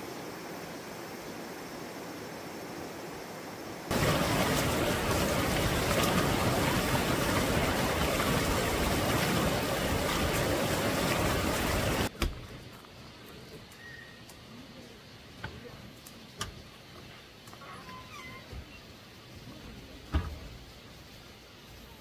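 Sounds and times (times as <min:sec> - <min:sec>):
stream water rushing: 0:00.0 - 0:12.1.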